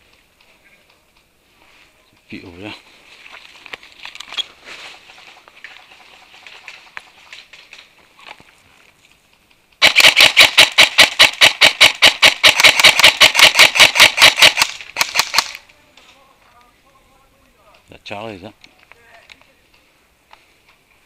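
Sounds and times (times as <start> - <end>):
airsoft rifle full-auto burst: 9.8 - 15.6.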